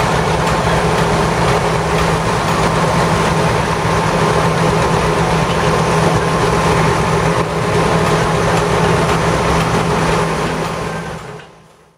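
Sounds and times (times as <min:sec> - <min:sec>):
heavy diesel engine droning: 0:00.0 - 0:11.9.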